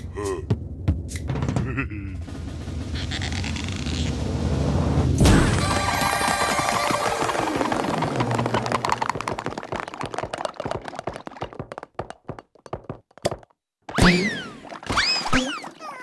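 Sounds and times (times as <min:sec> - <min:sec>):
plastic balls tapping: 0:06.2 - 0:13.6.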